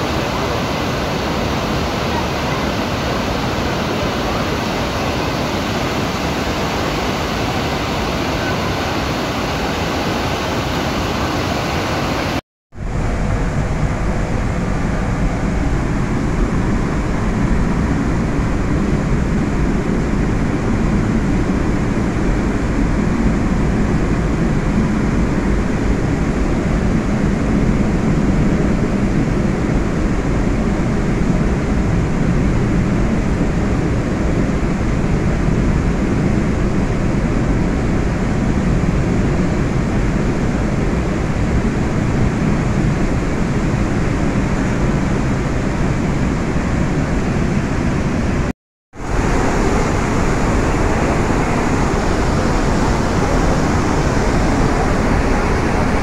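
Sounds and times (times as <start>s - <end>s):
waterfall rushing: 0.0s - 18.8s, 41.9s - 56.0s.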